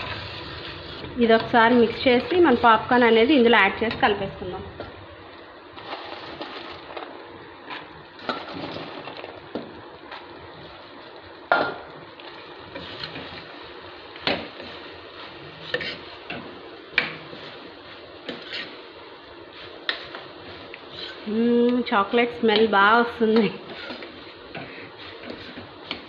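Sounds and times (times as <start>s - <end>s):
syrup bubbling and sizzling: 0.0s - 22.4s, 23.4s - 26.0s.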